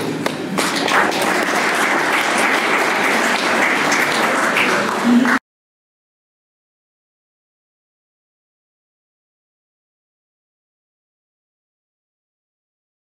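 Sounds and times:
audience applauding: 0.5 - 5.4.

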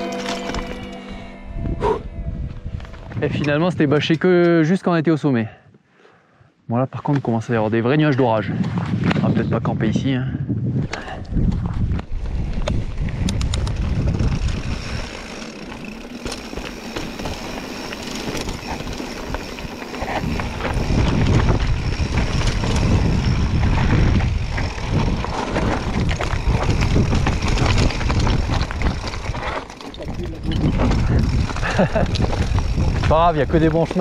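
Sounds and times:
bike rattling: 0.0 - 1.3, 11.4 - 34.0
wind buffeting microphone: 1.4 - 3.9, 8.4 - 16.0, 18.2 - 34.0
tyres crunching on stony trail: 13.8 - 34.0.

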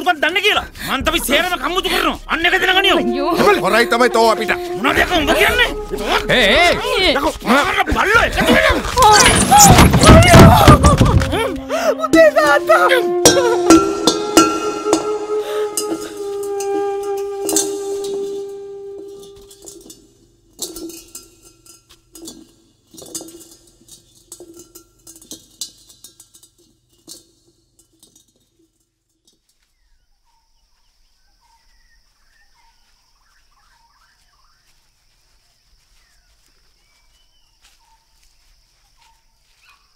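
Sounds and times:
pot rolling on concrete floor: 15.8 - 29.7
bird chirps: 29.6 - 39.9.

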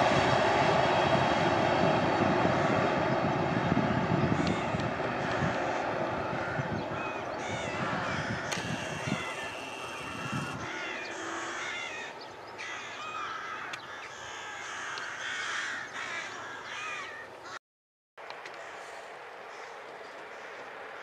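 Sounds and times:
train rumbling: 0.0 - 12.0
birds calling: 4.2 - 17.6.

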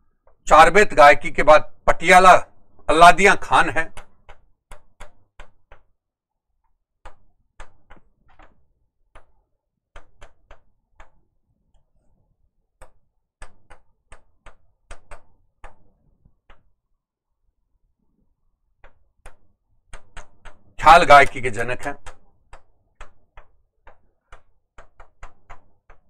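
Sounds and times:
pen tapping on a board: 3.5 - 6.0, 7.0 - 11.4, 12.8 - 16.7, 18.8 - 26.0.

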